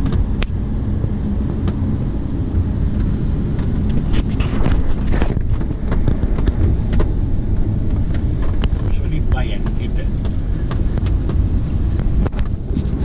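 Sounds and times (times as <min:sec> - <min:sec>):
car engine and road drone: 0:00.0 - 0:13.0.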